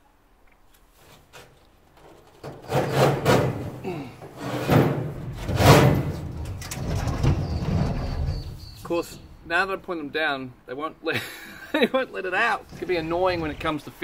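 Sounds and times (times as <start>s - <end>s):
steel pipe scraping sheet metal: 2.6s - 3.7s.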